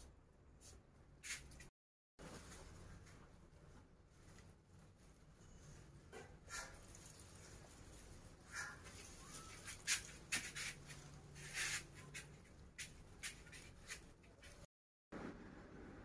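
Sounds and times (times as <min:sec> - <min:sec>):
faint squeak: 0:08.5 - 0:10.7
baby monkey scratching on towel: 0:08.5 - 0:14.6.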